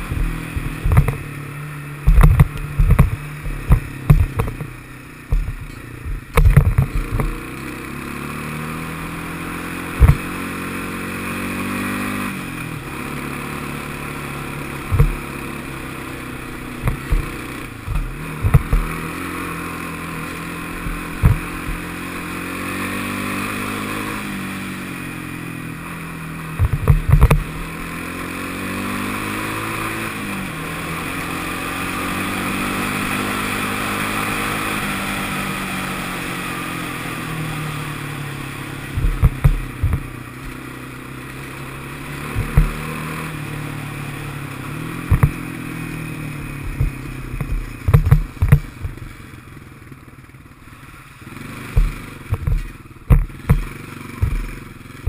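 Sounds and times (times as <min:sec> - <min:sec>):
atv engine revving: 0:00.0 - 0:55.0
sharp loud knocks: 0:10.0 - 0:10.2, 0:14.9 - 0:15.2, 0:45.1 - 0:45.4, 0:46.7 - 0:49.0, 0:51.8 - 0:54.5.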